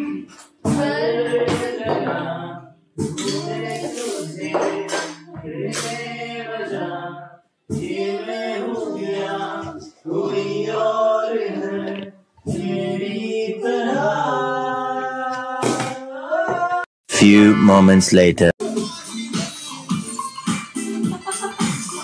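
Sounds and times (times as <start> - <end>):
person singing: 13.6 - 18.6.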